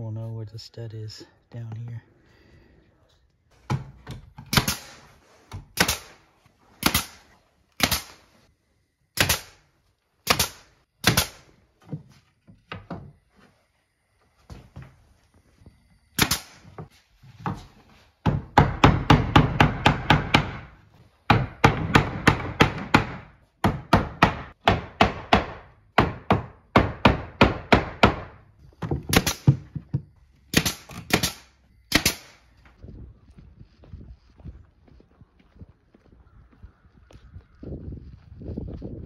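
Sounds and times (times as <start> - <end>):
pneumatic nail gun shots: 4.5 - 6.2, 6.8 - 8.3, 9.2 - 9.6, 10.2 - 11.5, 16.2 - 16.7, 29.1 - 29.6, 30.5 - 32.4.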